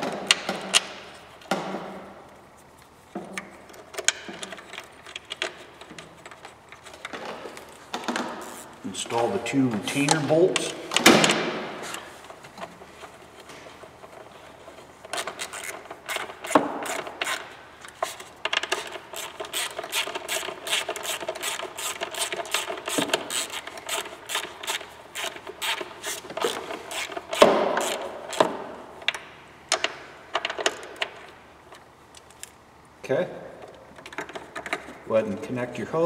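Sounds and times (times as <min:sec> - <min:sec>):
ratchet clicking: 0:18.0 - 0:28.5.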